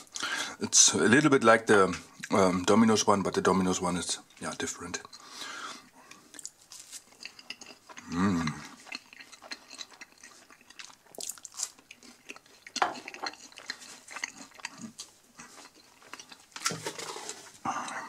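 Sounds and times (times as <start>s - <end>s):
person chewing food: 5.0s - 18.0s
person humming: 8.0s - 8.6s.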